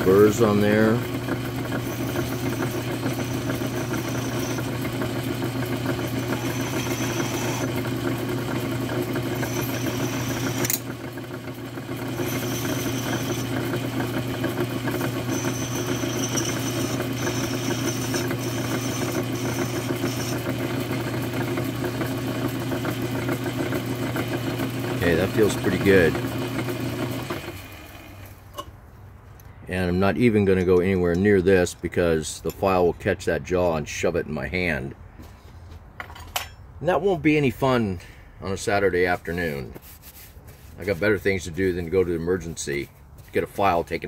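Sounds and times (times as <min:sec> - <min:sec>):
file scraping spinning metal: 0:00.0 - 0:28.2
milling machine running: 0:00.0 - 0:28.3.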